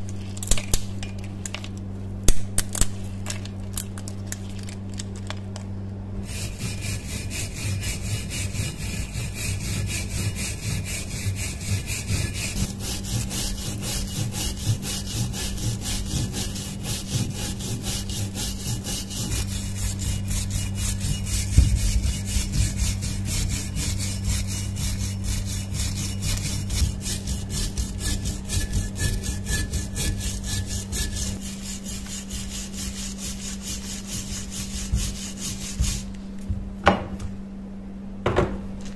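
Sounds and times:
wire brush scrubbing rust: 0:06.2 - 0:36.1.

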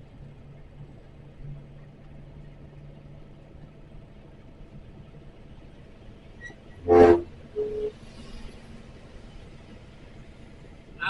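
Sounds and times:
truck engine humming: 0:00.0 - 0:11.0
loud horn blast: 0:06.8 - 0:08.0.

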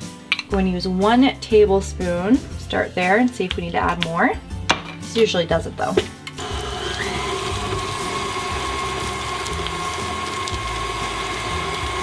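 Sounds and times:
stand mixer motor whine: 0:06.4 - 0:12.0.

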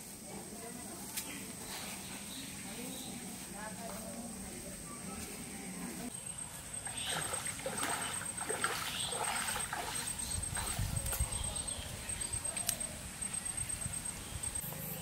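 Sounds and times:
water splashing and sloshing: 0:06.8 - 0:11.2
feet wading through water: 0:06.9 - 0:10.9.

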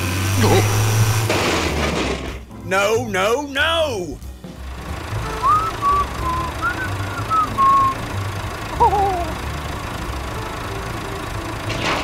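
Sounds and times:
tractor engine idling: 0:00.2 - 0:12.0
person whistling: 0:05.4 - 0:08.0.

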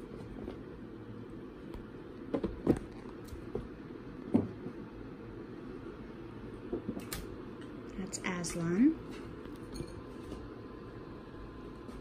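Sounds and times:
low room hum: 0:00.0 - 0:12.0.

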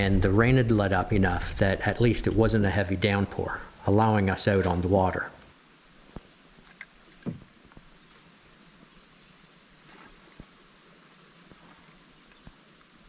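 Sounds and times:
faint even hiss: 0:00.0 - 0:13.0
small knock: 0:07.2 - 0:07.5.

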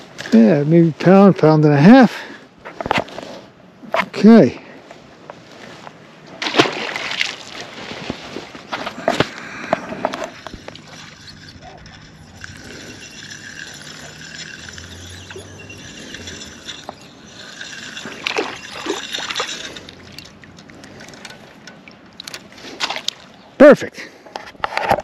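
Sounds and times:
water sloshing: 0:05.5 - 0:23.6
fish splashing into water: 0:06.4 - 0:08.1.

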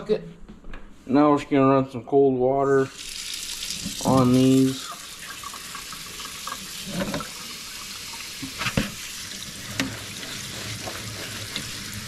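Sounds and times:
tap water running into sink: 0:02.9 - 0:12.0.

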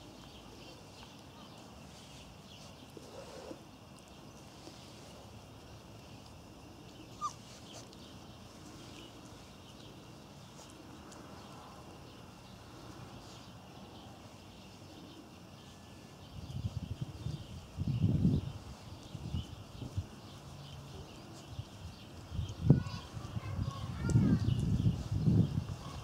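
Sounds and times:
puppies rustling on grass: 0:00.0 - 0:26.0
puppy squeaking: 0:07.1 - 0:07.9.

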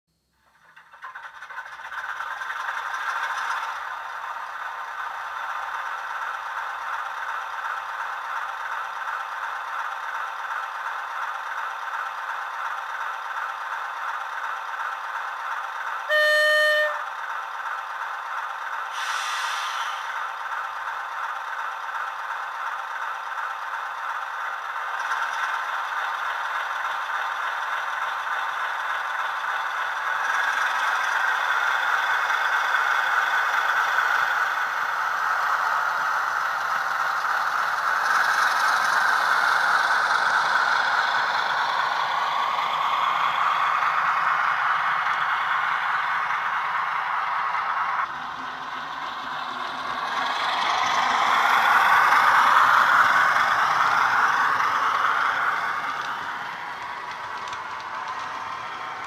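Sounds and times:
model diesel engine sound: 0:00.1 - 0:59.0
horn blast: 0:16.1 - 0:17.0
brief hiss: 0:19.0 - 0:20.2.

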